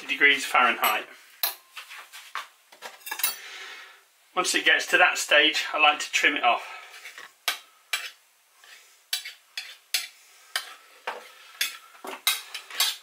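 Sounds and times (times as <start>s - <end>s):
knife scraping a pie dish rim: 7.9s - 10.7s.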